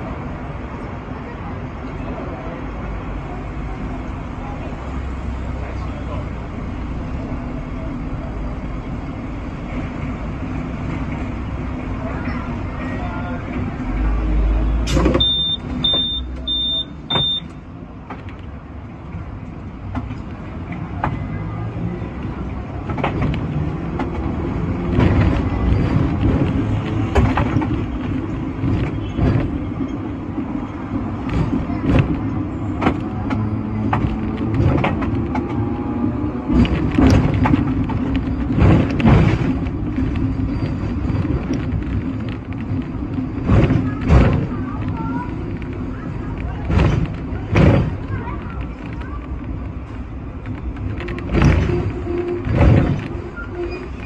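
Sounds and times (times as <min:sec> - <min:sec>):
tram rumbling along track: 0:00.0 - 0:54.0
short high beeps: 0:15.2 - 0:17.5.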